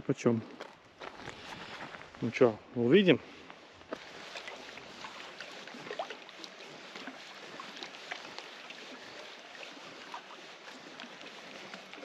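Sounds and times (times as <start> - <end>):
water lapping at shoreline: 3.1 - 12.0
small splashes and drips: 3.9 - 12.0.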